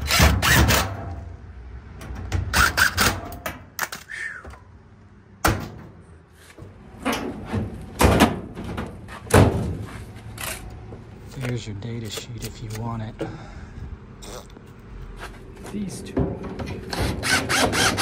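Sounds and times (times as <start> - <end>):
sheet metal knocks and thumps: 7.0 - 9.8.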